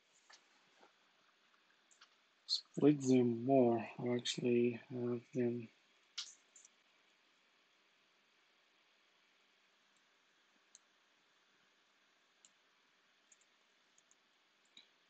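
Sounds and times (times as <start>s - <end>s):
computer mouse clicks: 13.3s - 14.9s.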